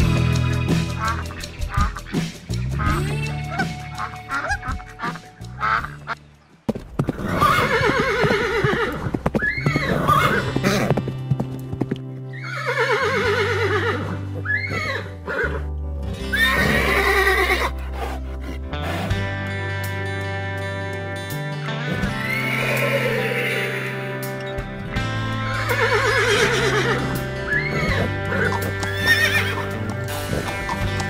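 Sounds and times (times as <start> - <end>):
background music with bass: 0.0 - 31.0
duck quacking: 0.4 - 6.2
horses whinnying: 7.0 - 11.0, 12.3 - 19.3, 21.9 - 24.2, 25.4 - 31.0.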